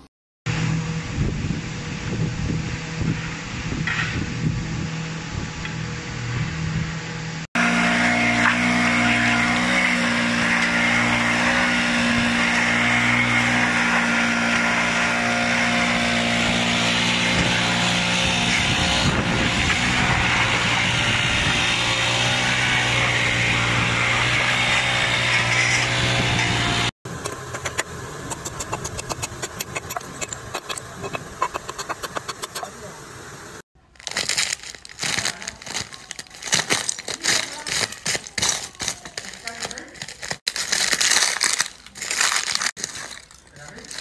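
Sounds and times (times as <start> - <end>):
steady machine hum: 0.0 - 9.5, 26.5 - 40.8
fast sharp clicks: 27.2 - 32.7
metal shovel scraping ice: 27.2 - 32.7, 34.1 - 44.0
ice cracking: 33.9 - 44.0.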